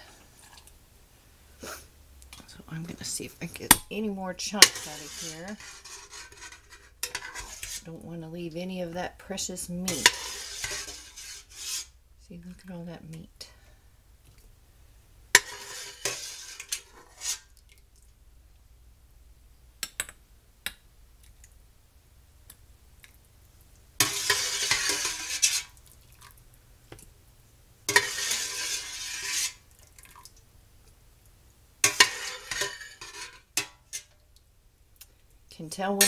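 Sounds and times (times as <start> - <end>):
metal utensil scraping a pot: 4.4 - 8.0, 9.8 - 12.0, 15.4 - 17.5, 24.0 - 25.8, 27.9 - 29.7, 31.8 - 34.2.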